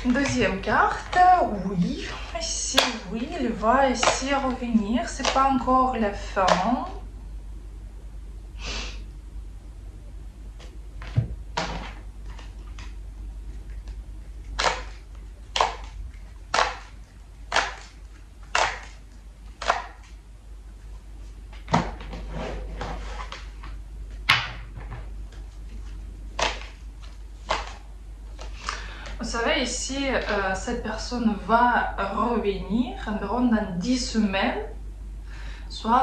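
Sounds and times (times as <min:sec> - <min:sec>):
cards being shuffled: 0:25.3 - 0:28.8.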